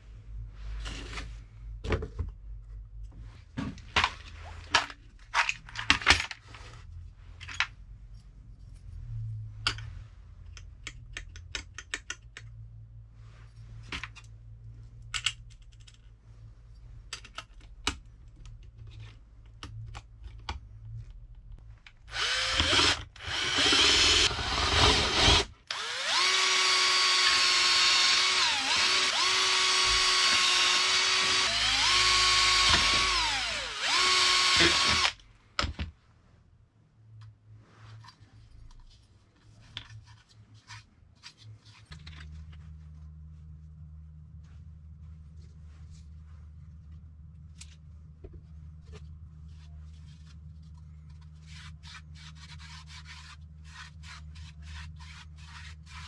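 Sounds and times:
cordless drill whirring: 0:22.1 - 0:35.2.

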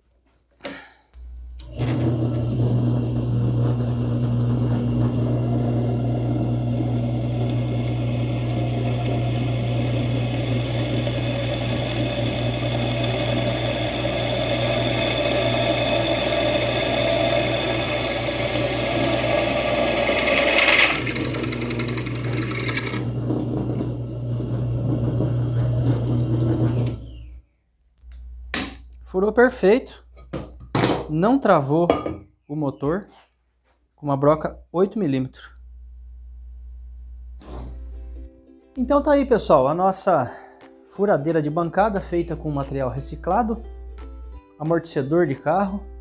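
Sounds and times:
drill press motor running: 0:01.6 - 0:27.1
drill bit squealing and rattling: 0:11.6 - 0:23.1.

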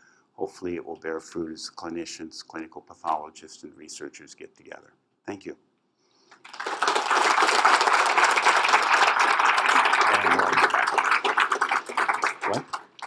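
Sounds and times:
audience applauding: 0:06.3 - 0:13.0.

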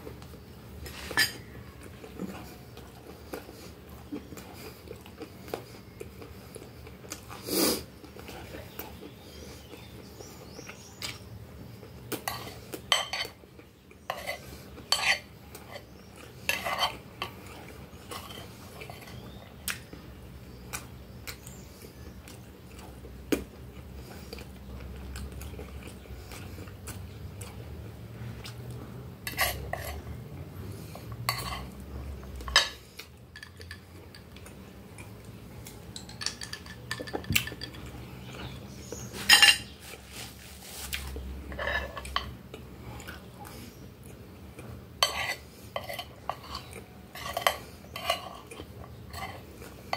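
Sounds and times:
fork scraping glass plate: 0:00.9 - 0:01.4, 0:14.1 - 0:15.9, 0:16.5 - 0:17.3, 0:29.3 - 0:30.0, 0:31.3 - 0:31.8, 0:39.1 - 0:39.8, 0:41.5 - 0:42.3, 0:45.0 - 0:49.4.

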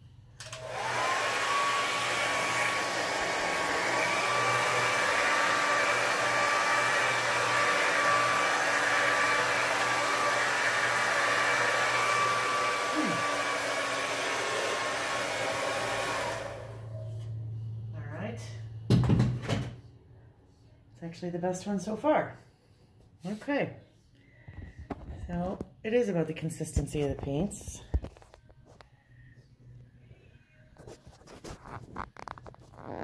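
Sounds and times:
hair dryer blowing with whine: 0:00.4 - 0:17.3.

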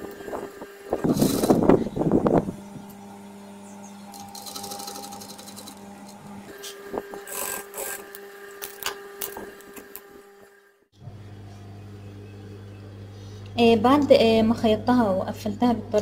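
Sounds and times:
sewing machine running: 0:01.0 - 0:01.8, 0:04.1 - 0:08.2.

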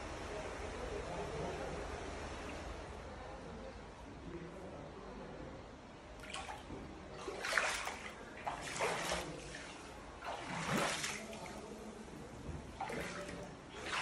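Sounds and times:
wading through water: 0:06.2 - 0:14.0.

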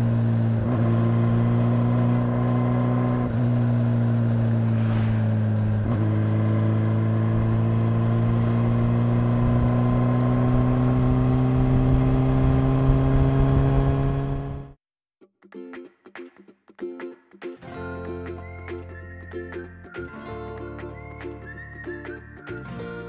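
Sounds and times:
motorcycle engine running: 0:00.0 - 0:14.8.

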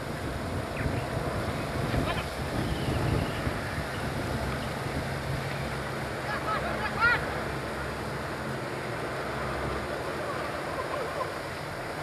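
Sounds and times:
wind noise on microphone: 0:00.0 - 0:06.4.

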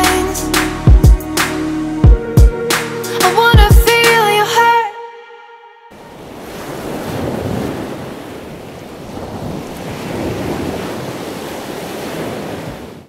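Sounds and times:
surf breaking on beach: 0:06.0 - 0:13.0
wind rumbling on microphone: 0:06.1 - 0:13.0.

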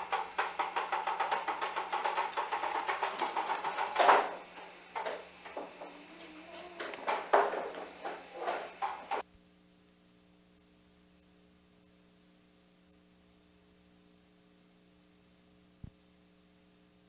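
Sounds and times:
knocks and rustles: 0:00.0 - 0:09.2
faint electrical hum: 0:00.0 - 0:17.0.

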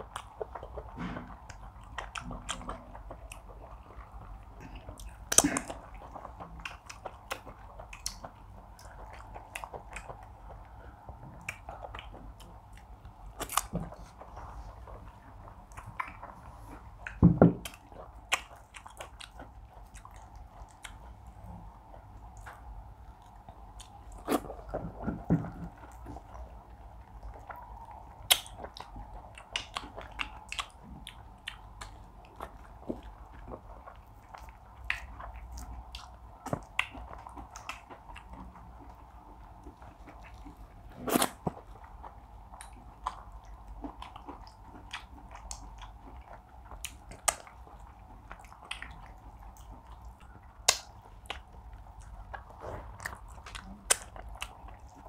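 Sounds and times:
faint steady hum: 0:00.0 - 0:55.0
people chewing food: 0:00.0 - 0:55.0
lip smacks: 0:22.3 - 0:39.0, 0:39.6 - 0:55.0.

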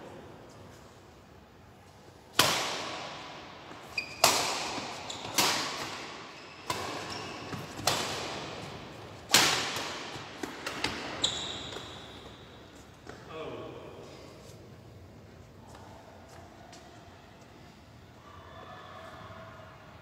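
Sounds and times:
rackets hitting shuttlecock: 0:02.3 - 0:11.9
shoes squeaking on court floor: 0:03.7 - 0:08.0, 0:10.1 - 0:13.2.

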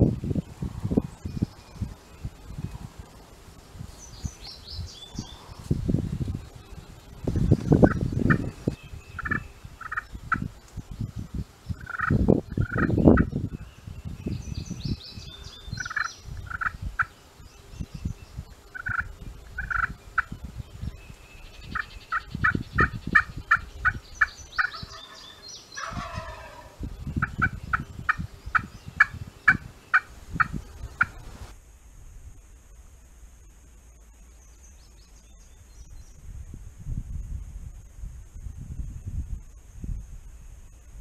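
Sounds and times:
turkeys yelping and gobbling: 0:09.2 - 0:10.1, 0:11.8 - 0:12.9, 0:15.8 - 0:16.7, 0:18.8 - 0:19.9, 0:24.6 - 0:27.5.

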